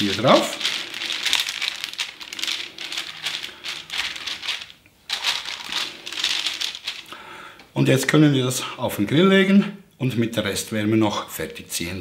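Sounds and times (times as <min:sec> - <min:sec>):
baking paper crinkling: 0:00.0 - 0:07.2.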